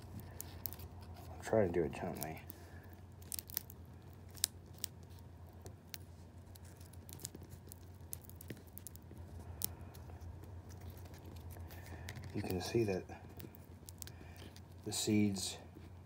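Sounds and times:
seed pod crackling: 0:00.0 - 0:15.3.

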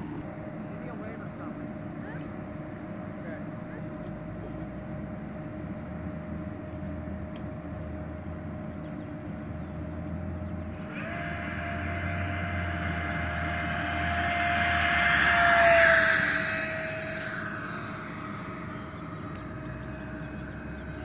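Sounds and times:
electric ducted fans whining: 0:00.0 - 0:21.0.

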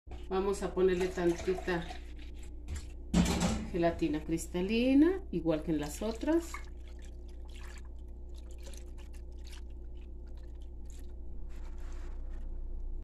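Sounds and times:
liquid splashing and trickling: 0:00.1 - 0:03.0, 0:05.7 - 0:11.4.

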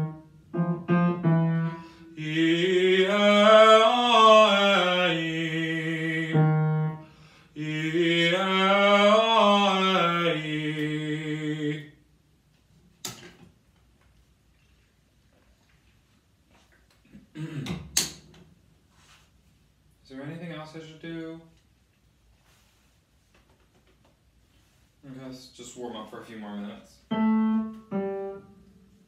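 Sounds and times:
man singing vocal warm-up: 0:01.5 - 0:12.0.

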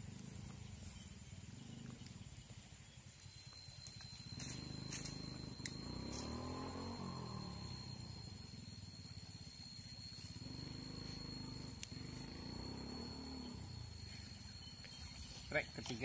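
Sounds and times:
steady high-pitched tone: 0:00.0 - 0:16.0
small motor engine running: 0:03.5 - 0:16.0.

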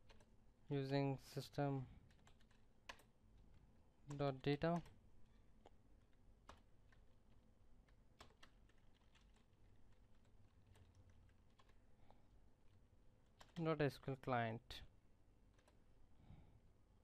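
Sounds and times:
computer keyboard keystrokes: 0:00.0 - 0:00.3, 0:02.1 - 0:03.1, 0:04.1 - 0:05.0, 0:05.6 - 0:07.2, 0:07.8 - 0:11.8, 0:13.2 - 0:13.6, 0:15.5 - 0:15.8
faint low hum: 0:00.0 - 0:17.0.

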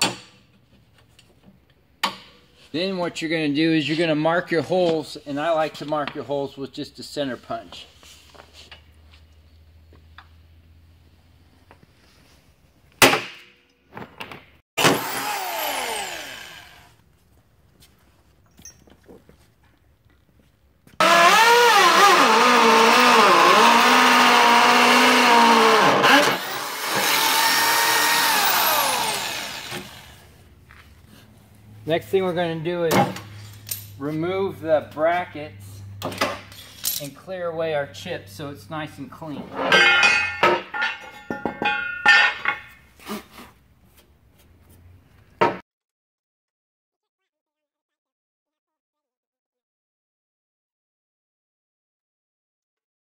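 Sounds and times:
electric drill whining: 0:14.8 - 0:16.9, 0:21.0 - 0:30.3
metal scraping and knocking: 0:39.5 - 0:42.8
steel brackets clanking: 0:39.5 - 0:42.8.

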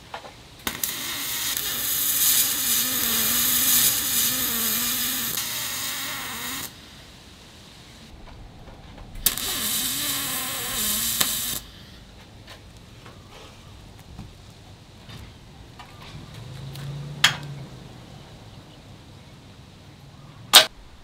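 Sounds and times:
welding arc hissing and crackling: 0:00.6 - 0:08.2, 0:09.2 - 0:11.9.

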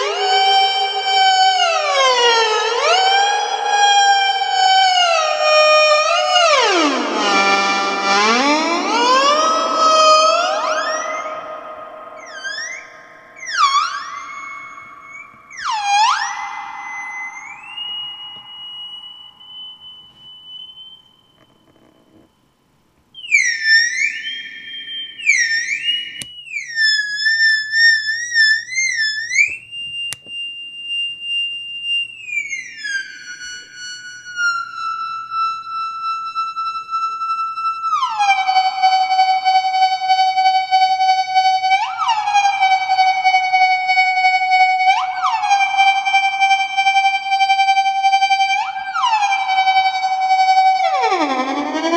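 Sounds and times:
high electronic whistle: 0:00.0 - 0:22.3, 0:23.1 - 0:51.9
electronic tone pulsing: 0:00.0 - 0:22.4.

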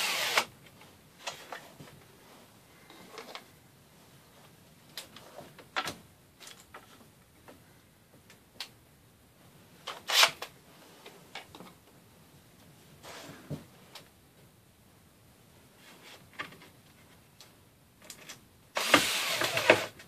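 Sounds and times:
screws and drill clicking on wood: 0:00.0 - 0:00.5, 0:18.8 - 0:20.0.

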